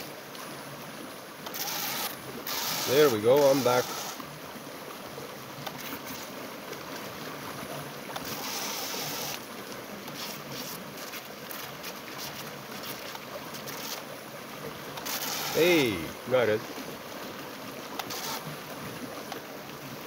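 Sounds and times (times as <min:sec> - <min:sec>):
river water rushing: 0:00.0 - 0:20.0
small electric motors whining: 0:01.4 - 0:04.3, 0:05.6 - 0:06.3, 0:08.2 - 0:09.5, 0:10.1 - 0:14.1, 0:14.9 - 0:16.1, 0:17.9 - 0:18.6.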